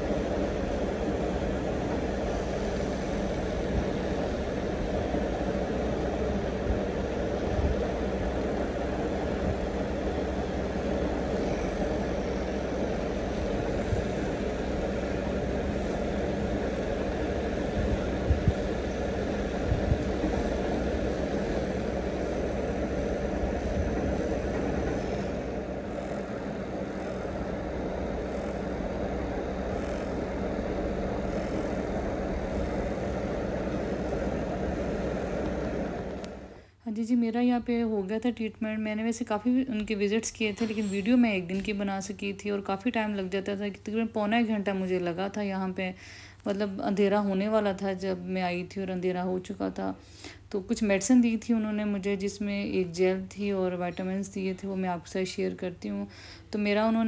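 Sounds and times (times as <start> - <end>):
massage gun buzzing: 0.0 - 36.6
massage gun tapping buzz: 25.9 - 27.4, 28.0 - 33.1.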